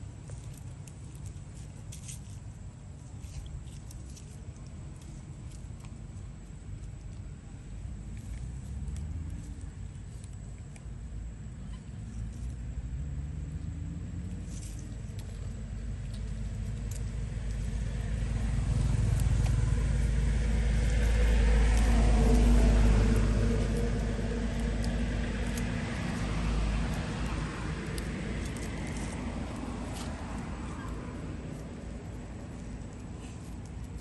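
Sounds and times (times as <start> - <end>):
vehicle engine rumble passing: 0.0 - 34.0.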